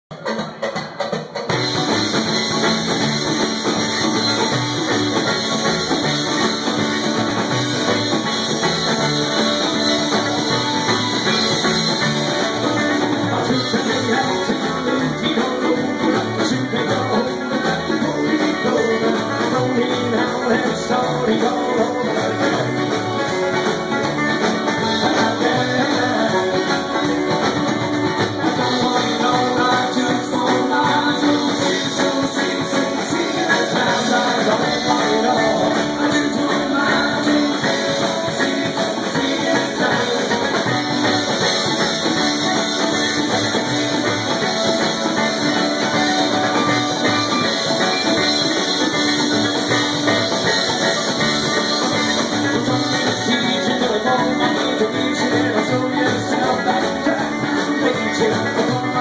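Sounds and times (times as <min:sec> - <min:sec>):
acoustic guitar: 0:00.1 - 0:59.0
banjo: 0:00.1 - 0:59.0
upright bass: 0:01.4 - 0:59.0
mandolin: 0:01.5 - 0:59.0.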